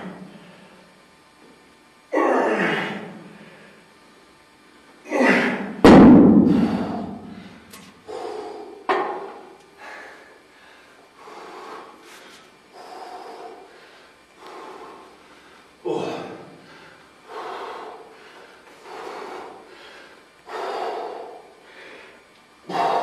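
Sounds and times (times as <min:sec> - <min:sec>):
man breathing hard: 0:02.5 - 0:03.9, 0:06.4 - 0:23.0.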